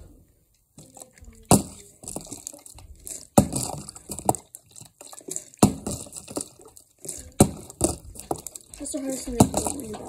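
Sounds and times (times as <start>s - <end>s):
plastic crinkling: 0.8s - 10.0s
plastic bottle thudding on surface: 1.4s - 2.4s, 3.4s - 4.4s, 5.6s - 6.4s.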